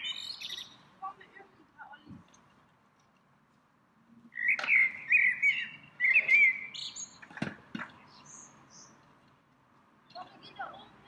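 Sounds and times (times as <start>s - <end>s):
songbird warbling: 0.0s - 0.8s, 4.3s - 7.2s.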